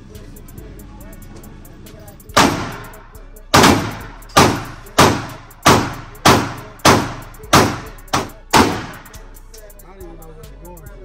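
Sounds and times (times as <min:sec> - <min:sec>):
pistol shots ringing indoors: 0:02.4 - 0:09.2.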